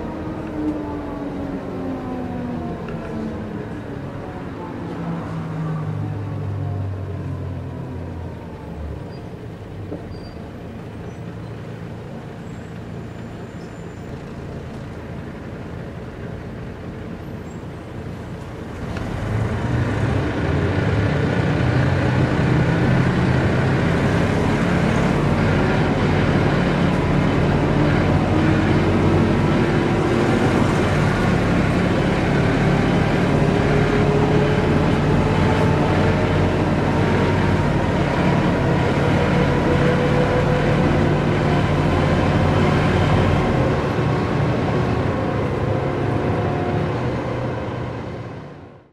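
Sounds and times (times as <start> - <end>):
bus diesel engine running: 0.0 - 48.9
drivetrain whine: 0.0 - 48.9.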